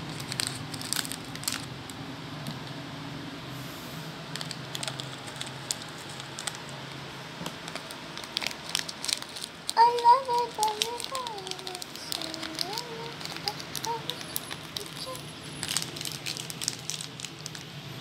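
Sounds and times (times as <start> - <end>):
sprinkles falling: 0.0 - 2.6, 4.2 - 17.8
plastic packet rustling: 0.0 - 2.8, 4.3 - 17.8
low steady hum: 0.0 - 18.0.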